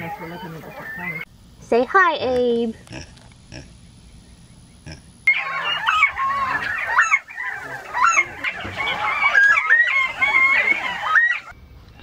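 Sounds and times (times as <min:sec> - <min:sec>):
quail flock calling: 0:00.0 - 0:01.3, 0:03.5 - 0:11.6.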